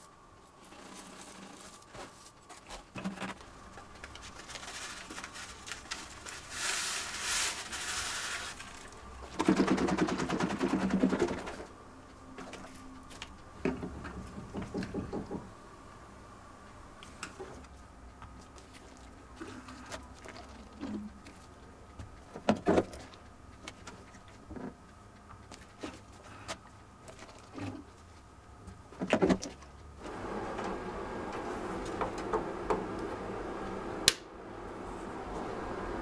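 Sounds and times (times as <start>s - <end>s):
powder hissing through funnel: 4.7s - 9.2s
jug rattling and water sloshing: 18.5s - 21.6s.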